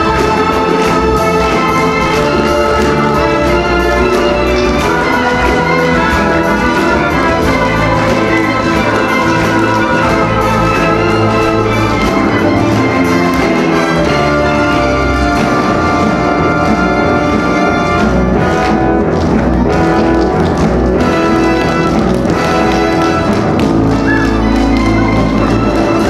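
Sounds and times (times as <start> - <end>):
loud orchestral music: 0.0 - 26.0.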